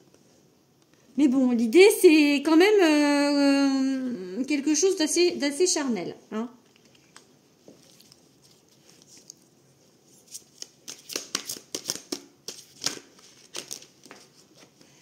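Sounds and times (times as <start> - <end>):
cards being shuffled: 6.7 - 9.5, 10.1 - 14.9.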